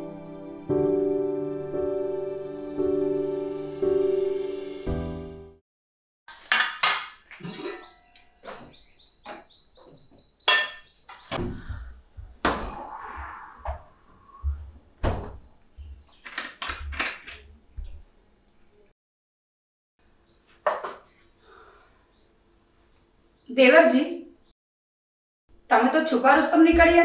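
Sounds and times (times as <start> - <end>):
pots and plates clanking: 6.5 - 8.6, 10.5 - 10.9
bird chirping: 7.5 - 12.0, 15.2 - 16.4, 20.0 - 24.5.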